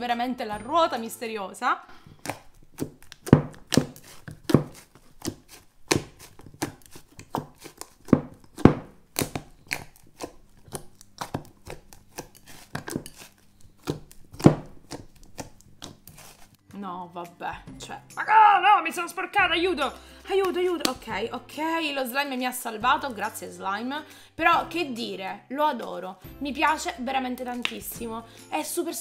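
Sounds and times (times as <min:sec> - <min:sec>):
slime popping and clicking: 0:05.2 - 0:13.2.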